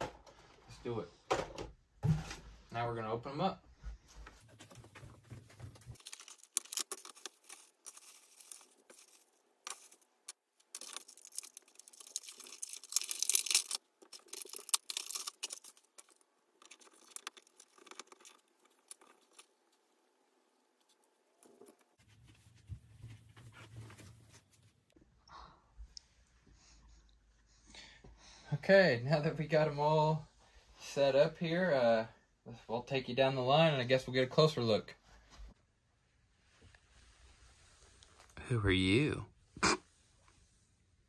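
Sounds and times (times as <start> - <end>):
plastic packaging crinkling: 5.9 - 19.6.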